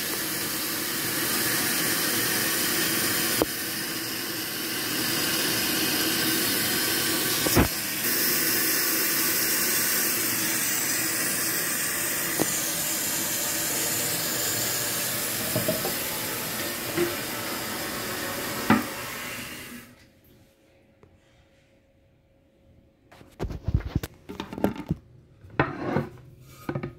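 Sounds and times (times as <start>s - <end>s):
toilet fill valve hissing: 0.0s - 20.0s.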